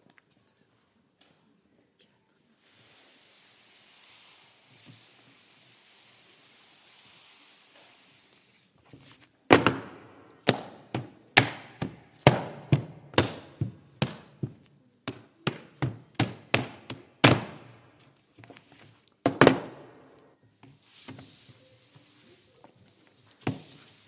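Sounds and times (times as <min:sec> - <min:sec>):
hands slapping books on table: 0:09.0 - 0:17.7.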